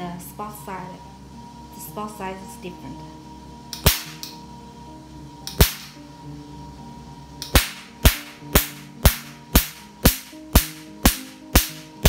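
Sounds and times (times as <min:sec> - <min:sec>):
laser pulse snaps: 0:03.7 - 0:04.4, 0:05.5 - 0:06.0, 0:07.4 - 0:12.0.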